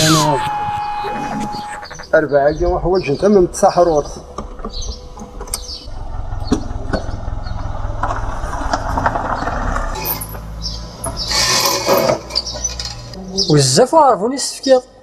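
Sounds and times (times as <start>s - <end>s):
loud rush of noise: 0.0s - 10.6s
car engine rumbling: 0.0s - 13.4s
street noise: 0.0s - 15.0s.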